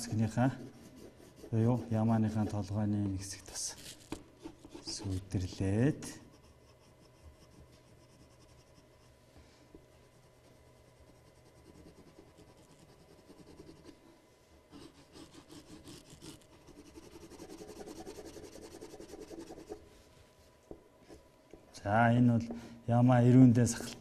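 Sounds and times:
pencil scratching on paper: 0.0s - 2.7s, 3.5s - 9.1s, 10.1s - 14.0s, 14.7s - 19.8s.

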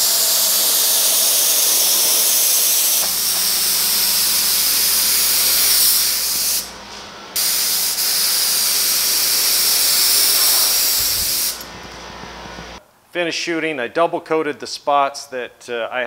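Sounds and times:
spray gun hissing: 0.0s - 6.8s, 7.4s - 11.6s.

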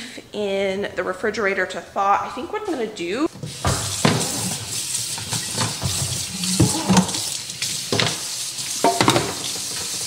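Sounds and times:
dish brush scrubbing: 3.3s - 10.0s
faucet running into sink: 3.4s - 10.0s
clunks against metal sink: 3.6s - 4.5s, 8.8s - 9.5s.

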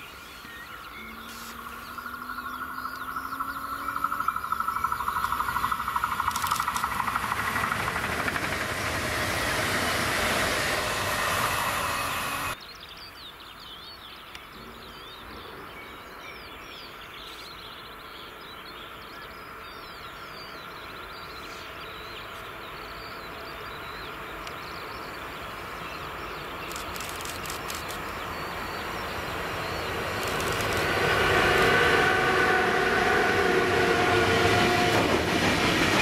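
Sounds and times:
electric train passing: 0.0s - 12.6s, 20.6s - 36.0s
low rumble of approaching train: 0.0s - 12.6s, 17.6s - 36.0s
birdsong: 0.0s - 33.2s.

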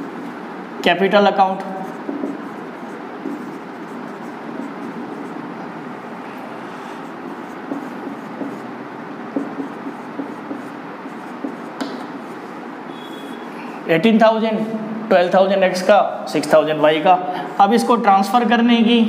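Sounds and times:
pen scratching while writing: 1.8s - 5.6s, 6.7s - 13.4s.

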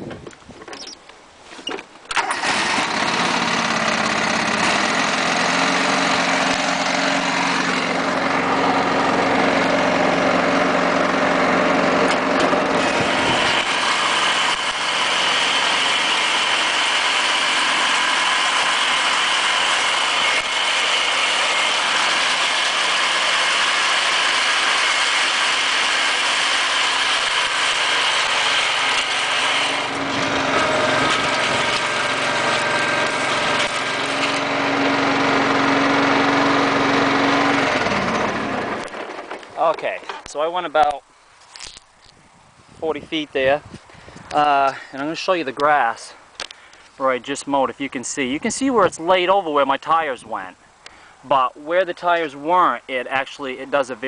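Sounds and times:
lawn tractor engine running: 2.0s - 41.0s.

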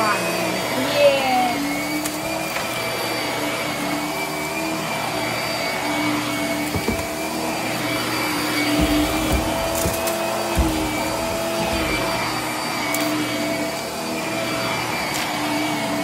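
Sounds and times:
vacuum cleaner running: 0.0s - 16.0s
low bumps: 8.5s - 12.4s.

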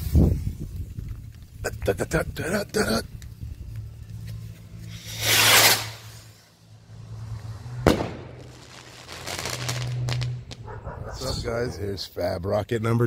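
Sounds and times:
low steady hum: 0.0s - 5.0s
rocket launching whoosh: 5.0s - 6.3s, 7.8s - 10.6s
firework bang: 7.8s - 10.7s.

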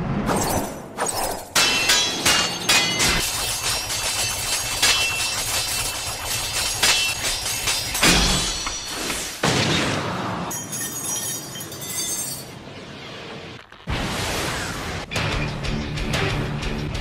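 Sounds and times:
ringing metallic blade scrape: 0.3s - 9.4s
sharp explosive impacts: 6.8s - 10.5s, 13.2s - 15.1s.

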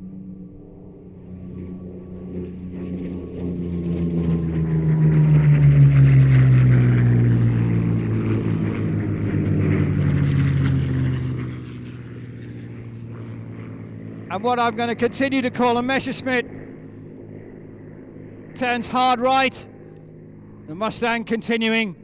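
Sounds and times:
piston aircraft engine flyby: 0.0s - 22.0s.

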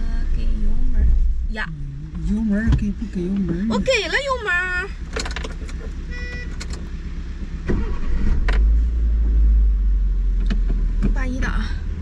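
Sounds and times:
van engine rumbling: 0.0s - 12.0s
short beep: 6.1s - 6.6s.

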